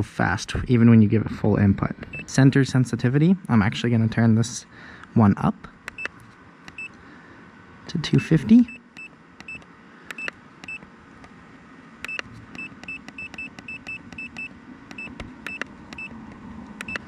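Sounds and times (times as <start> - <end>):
small clicks: 8.9 - 11.4, 12.0 - 17.0
short high electronic beeps: 12.1 - 16.1.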